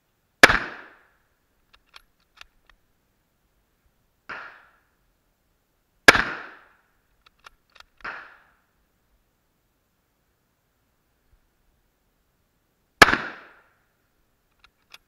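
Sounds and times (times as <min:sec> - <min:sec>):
faint gunshots: 0:00.4 - 0:01.0, 0:04.3 - 0:04.8, 0:06.1 - 0:06.7, 0:08.0 - 0:08.5, 0:13.0 - 0:13.7
rifle shot: 0:00.4 - 0:01.1, 0:04.3 - 0:04.8, 0:06.1 - 0:06.8, 0:08.0 - 0:08.5, 0:13.0 - 0:13.7
metallic bolt clicks: 0:01.7 - 0:02.8, 0:07.2 - 0:08.1, 0:14.5 - 0:15.0.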